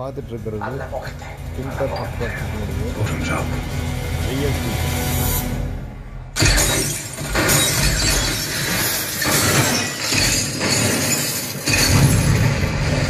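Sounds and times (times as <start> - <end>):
window glass shattering: 6.4 - 13.0.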